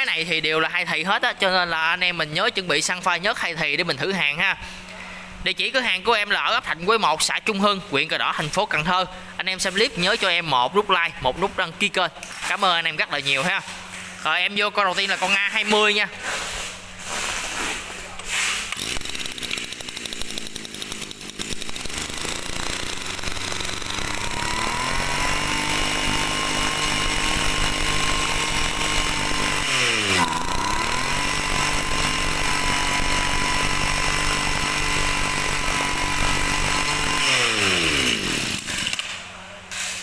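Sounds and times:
brush cutter engine revving: 15.0s - 40.0s.

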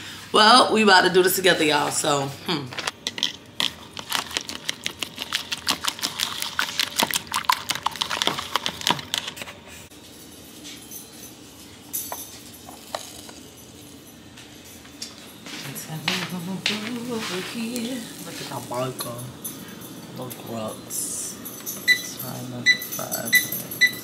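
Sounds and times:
fork beating eggs in bowl: 3.1s - 9.4s.

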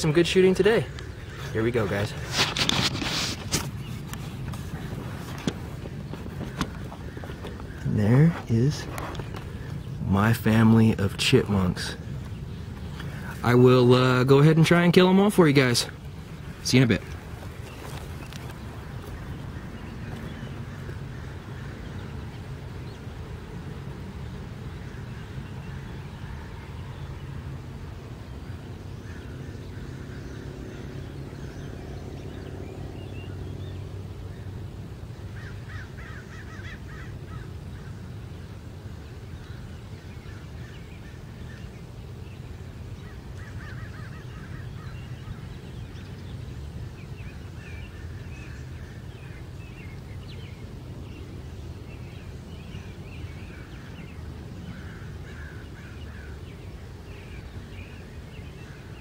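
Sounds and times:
crows cawing: 0.8s - 3.6s, 4.7s - 9.8s, 16.5s - 22.6s, 28.4s - 32.2s, 35.3s - 38.5s, 43.0s - 45.6s, 53.4s - 57.9s.

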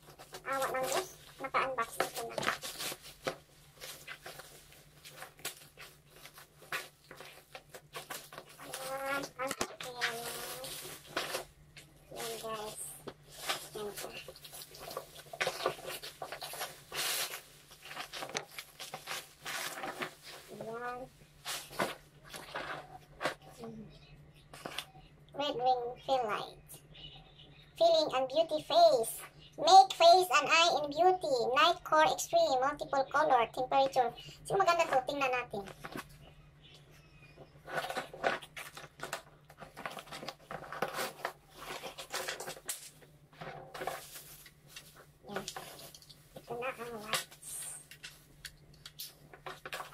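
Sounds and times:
plastic wrap crinkling: 0.0s - 23.5s, 37.5s - 49.9s.

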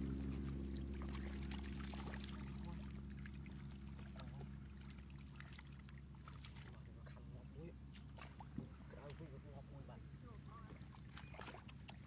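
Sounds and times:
water splashing and dripping: 0.0s - 7.2s, 10.5s - 12.0s
low steady hum: 0.0s - 12.0s.

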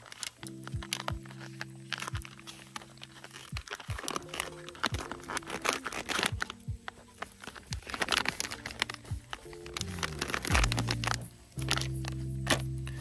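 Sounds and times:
foil pouch crinkling: 0.0s - 13.0s
background music with drum beat: 3.5s - 4.2s, 6.3s - 8.1s, 8.9s - 9.5s, 10.4s - 13.0s.

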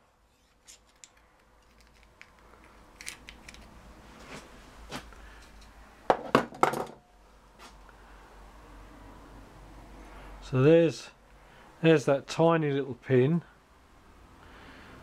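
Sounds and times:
small metal parts clinking: 0.4s - 3.7s.

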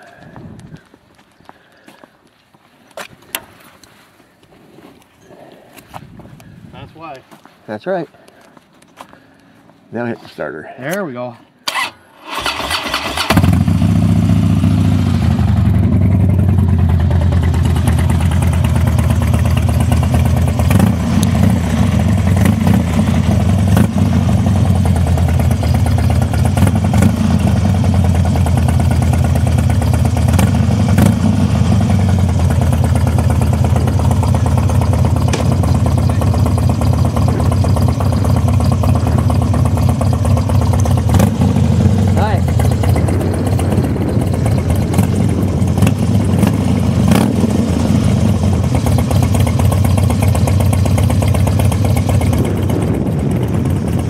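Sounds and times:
motorcycle engine running at low revs: 13.3s - 54.0s.

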